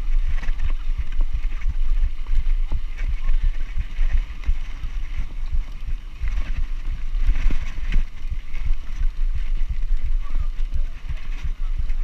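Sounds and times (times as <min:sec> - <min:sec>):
mountain bike rattling and knocking: 0:00.0 - 0:12.0
wind rumble on microphone: 0:00.0 - 0:12.0.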